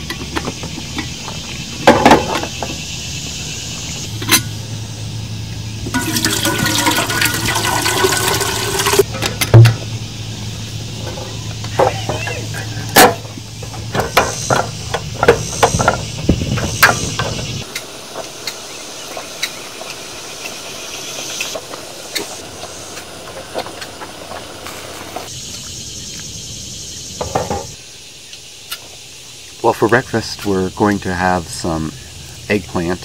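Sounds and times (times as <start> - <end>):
water pouring into metal pot: 5.9 - 9.0
metal lid clanking: 6.0 - 9.8.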